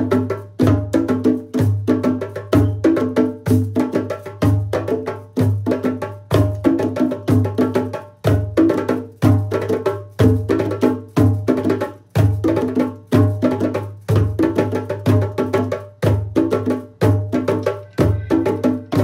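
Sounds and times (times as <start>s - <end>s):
hand drums playing a groove: 0.0s - 19.0s.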